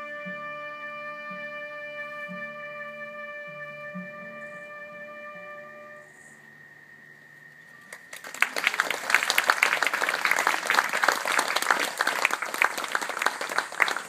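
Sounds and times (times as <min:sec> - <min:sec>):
audience applause: 0:07.9 - 0:14.0.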